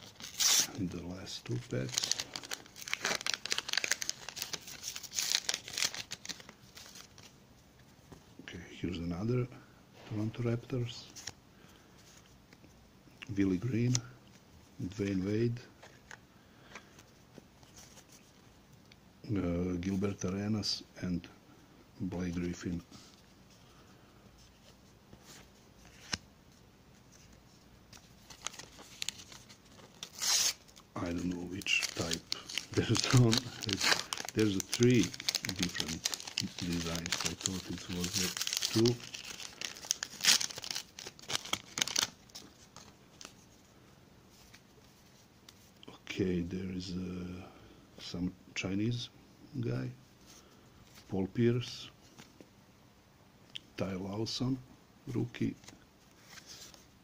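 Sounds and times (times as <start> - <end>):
wrapper tearing and crinkling: 0.0 - 0.8, 1.5 - 7.3, 28.2 - 43.3
paper rustling: 1.5 - 7.3, 27.0 - 43.5, 55.6 - 56.9.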